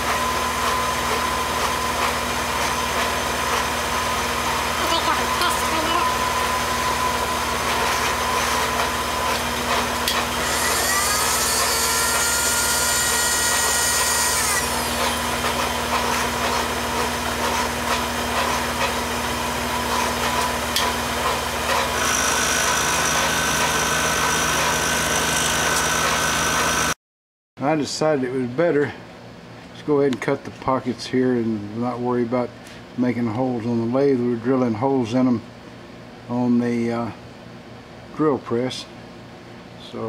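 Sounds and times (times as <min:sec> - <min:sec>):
end mill cutting metal: 0:00.0 - 0:27.0
milling machine motor and gear whine: 0:00.0 - 0:27.0.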